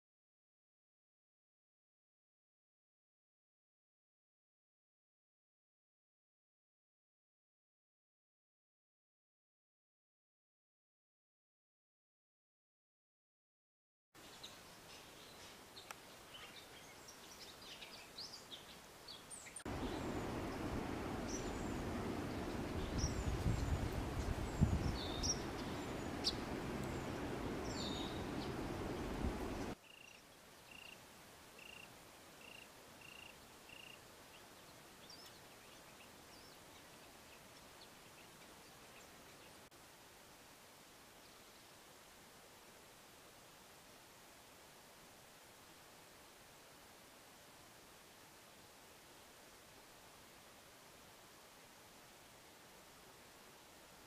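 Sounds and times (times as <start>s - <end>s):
small birds chirping: 14.2s - 31.0s, 31.6s - 39.7s
outdoor noise rushing: 19.7s - 29.8s.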